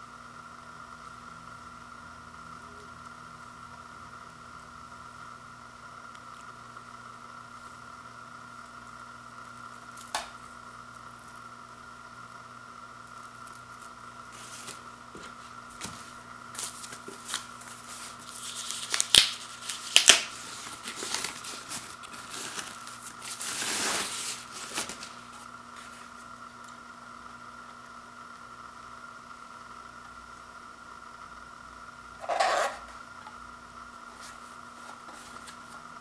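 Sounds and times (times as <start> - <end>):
faint steady hum: 0.0 - 36.0
plastic wrap rustling and tearing: 13.4 - 26.2.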